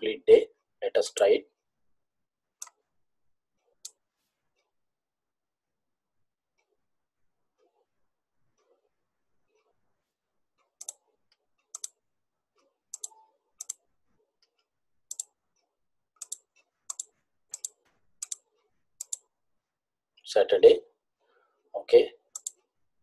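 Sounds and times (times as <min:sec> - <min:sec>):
computer mouse double clicks: 0:16.2 - 0:18.4.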